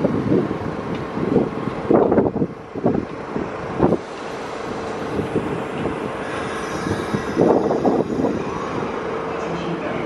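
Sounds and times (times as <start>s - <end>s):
subway train hum and rumble: 0.0s - 10.0s
faint high squeal: 6.2s - 9.1s.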